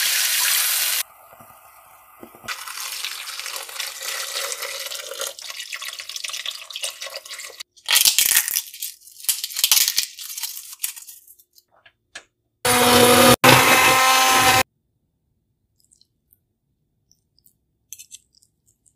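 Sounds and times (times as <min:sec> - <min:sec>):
broth pouring: 0:01.4 - 0:07.7
stick blender motor: 0:12.7 - 0:14.6.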